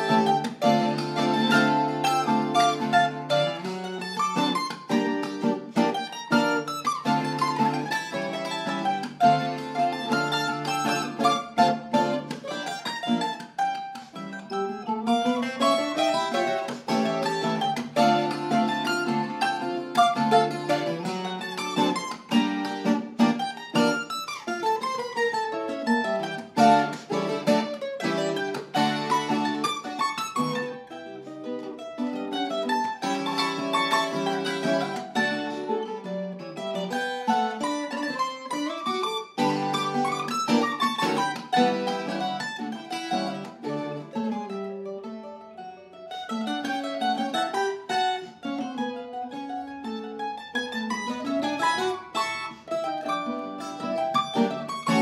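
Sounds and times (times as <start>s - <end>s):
strummed string chords: 0.0s - 25.1s, 25.7s - 44.5s, 51.0s - 55.0s
plucked string melody: 0.0s - 55.0s.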